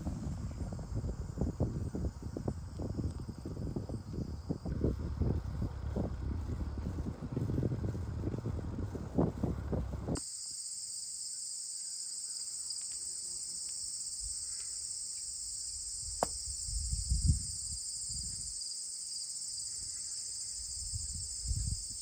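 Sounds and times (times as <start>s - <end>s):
soft low rumbles: 0.0s - 10.2s
insects chirping chorus: 0.0s - 22.0s.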